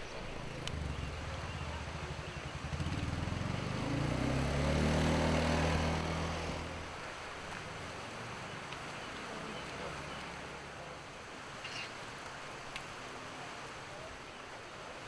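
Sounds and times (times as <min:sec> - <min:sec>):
atv engine driving past: 0:00.3 - 0:08.7.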